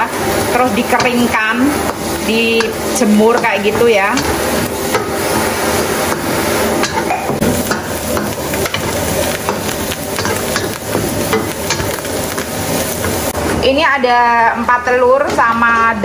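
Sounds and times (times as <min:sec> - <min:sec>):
spatula scraping wok: 0:00.0 - 0:13.7
food sizzling in oil: 0:00.0 - 0:14.6
spatula clicking on pan: 0:06.1 - 0:13.2.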